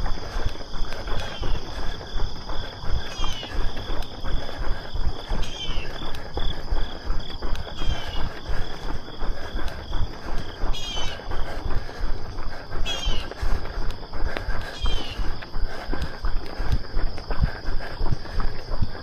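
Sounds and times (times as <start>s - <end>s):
insects trilling: 0.0s - 19.0s
running footsteps: 0.0s - 19.0s.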